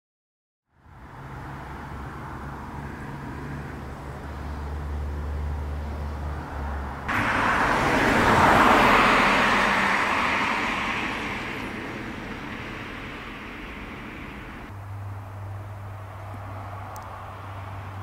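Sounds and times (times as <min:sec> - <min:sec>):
car passing: 0:00.8 - 0:18.0
low hum: 0:07.1 - 0:14.7.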